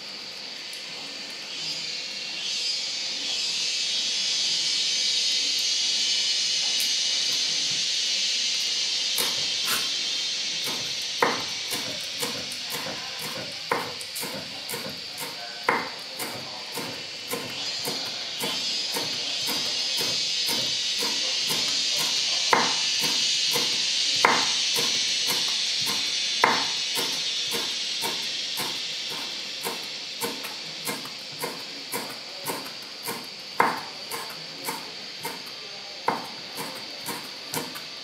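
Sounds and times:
steady high hiss: 0.0s - 38.0s
cleaver chopping on wooden board: 11.2s - 19.6s, 24.2s - 24.5s, 26.4s - 27.1s, 30.2s - 35.4s, 36.1s - 37.7s.

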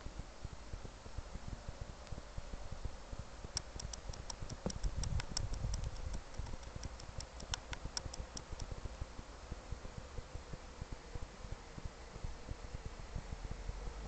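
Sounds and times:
wind buffeting microphone: 4.4s - 6.6s.

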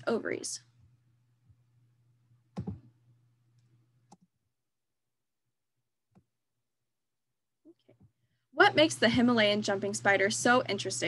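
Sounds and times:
faint low hum: 0.0s - 4.3s
computer mouse clicks: 2.5s - 2.9s.

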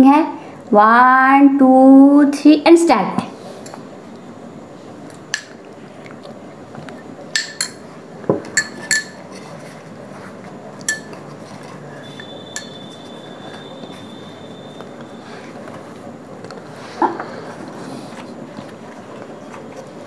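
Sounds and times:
metal spoon clinking on glass bowls: 7.3s - 7.8s, 8.5s - 9.2s, 10.8s - 11.2s, 12.1s - 12.9s.

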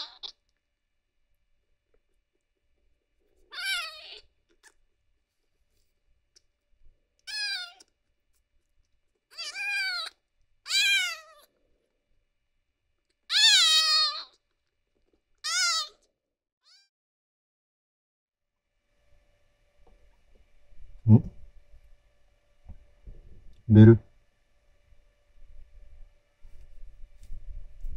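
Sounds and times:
kitten mewing: 0.0s - 0.4s, 3.5s - 4.8s, 7.2s - 7.9s, 9.3s - 11.5s, 13.3s - 14.4s, 15.4s - 16.0s.

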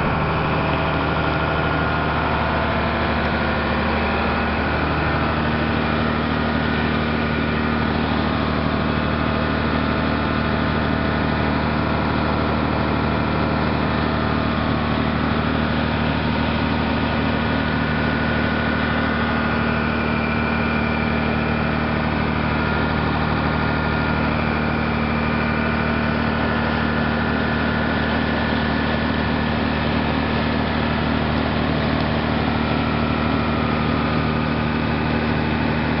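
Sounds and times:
churned water rushing: 0.0s - 8.0s
motor boat engine droning: 0.0s - 36.0s.

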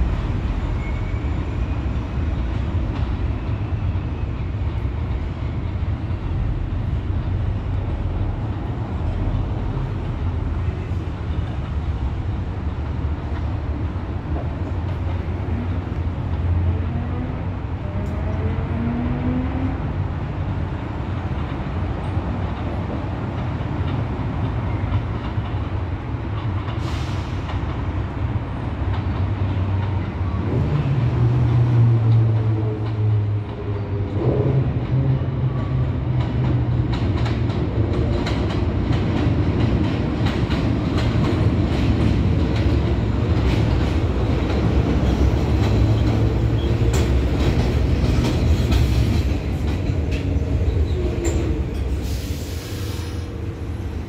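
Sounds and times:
subway train rumbling: 0.0s - 54.0s
wheels clicking over rail joints: 35.7s - 52.0s.

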